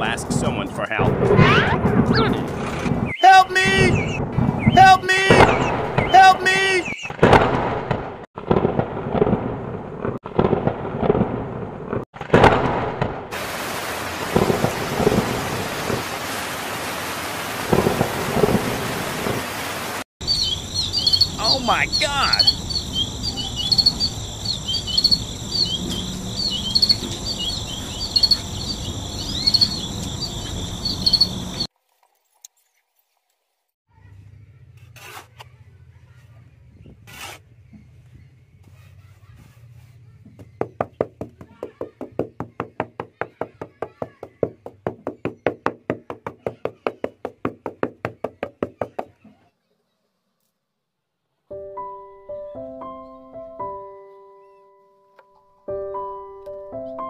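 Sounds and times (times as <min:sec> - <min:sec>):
thunder claps: 0:07.2 - 0:16.2, 0:17.6 - 0:19.6
heavy rain hissing: 0:13.3 - 0:23.3
crickets chirping: 0:20.2 - 0:31.7.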